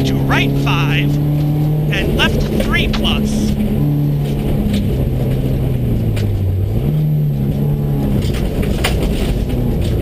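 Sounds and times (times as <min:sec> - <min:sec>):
car engine from inside cabin: 0:00.0 - 0:10.0.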